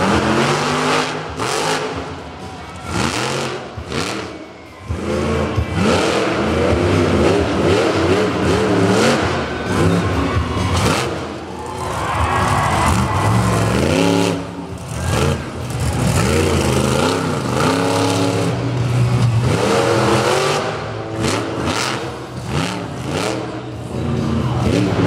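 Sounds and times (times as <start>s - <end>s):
monster truck engine revving: 0.0s - 25.0s.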